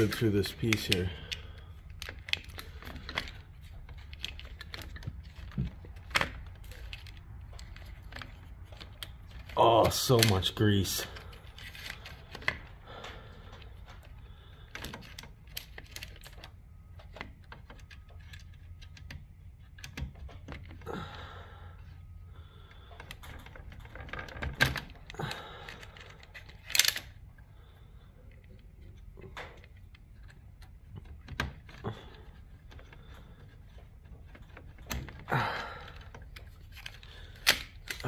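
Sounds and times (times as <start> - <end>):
plastic clicks and rattles: 0.0 - 20.9, 22.6 - 27.2, 28.3 - 38.0.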